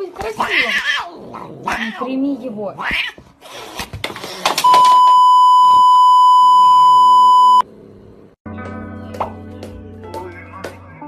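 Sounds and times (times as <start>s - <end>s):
censor bleep tone: 4.6s - 7.6s.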